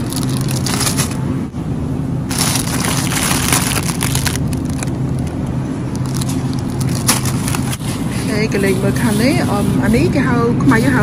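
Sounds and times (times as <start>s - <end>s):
plastic wrap crinkling: 0.0s - 1.2s, 2.3s - 8.0s
steady low hum: 0.0s - 11.0s.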